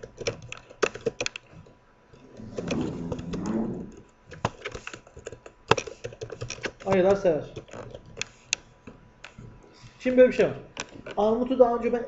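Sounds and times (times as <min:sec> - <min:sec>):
keyboard typing: 0:00.0 - 0:01.5, 0:02.4 - 0:08.6.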